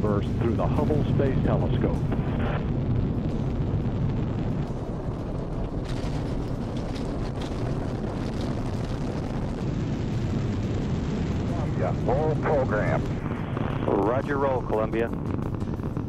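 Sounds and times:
deep rocket exhaust rumble: 0.0s - 16.0s.

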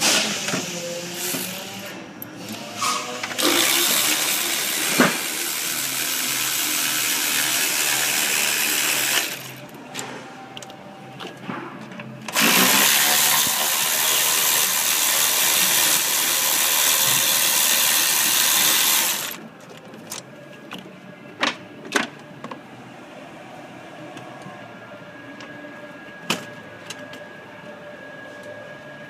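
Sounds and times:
cordless ratchet running: 3.4s - 9.6s, 12.3s - 19.4s.

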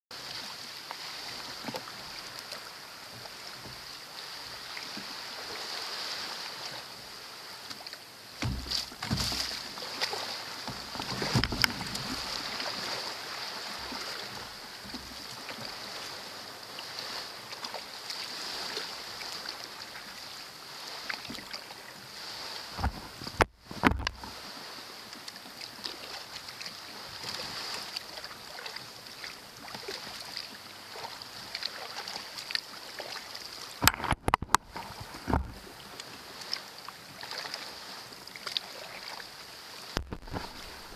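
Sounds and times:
small waves lapping against hull: 0.1s - 40.9s
thumps on hull: 8.4s - 9.7s, 10.6s - 12.3s, 22.8s - 24.3s, 33.8s - 35.6s, 40.0s - 40.9s.

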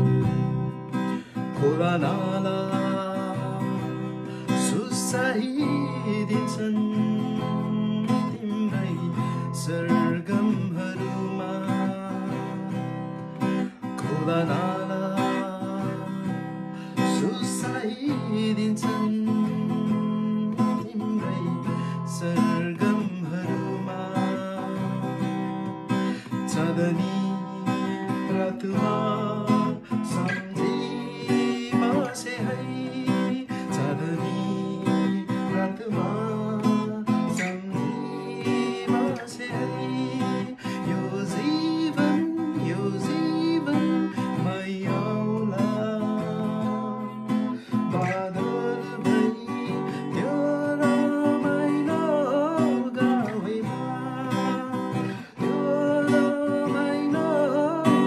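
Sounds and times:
acoustic guitar strumming chords: 0.0s - 58.0s
man singing: 0.0s - 58.0s.

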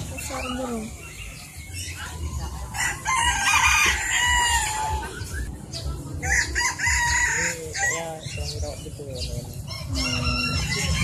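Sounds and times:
rooster crowing: 2.7s - 5.0s, 9.7s - 11.0s.

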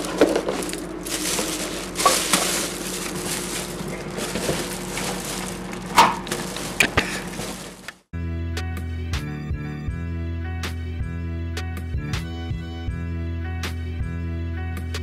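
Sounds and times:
plastic bag rustling: 0.0s - 8.1s.

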